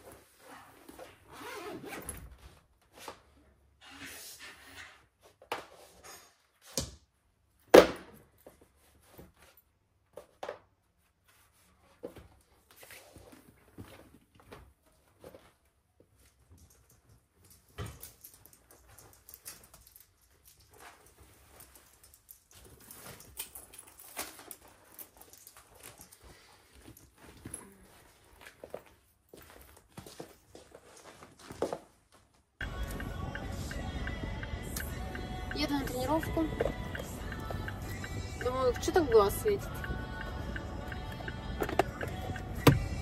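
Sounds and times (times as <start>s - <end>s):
knocks clicks and handling noises: 40.9s - 43.0s.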